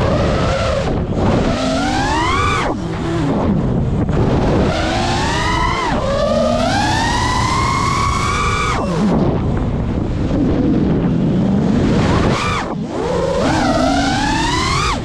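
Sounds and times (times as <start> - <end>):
drone motors whining: 0.0 - 15.0
steady rushing noise: 0.0 - 15.0.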